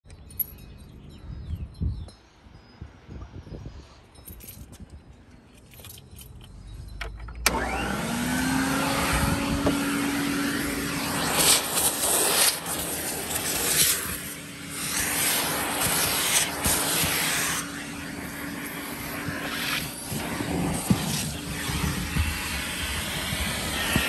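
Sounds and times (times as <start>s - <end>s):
vacuum cleaner motor whine: 7.4s - 24.0s
air rushing through nozzle: 8.7s - 24.0s.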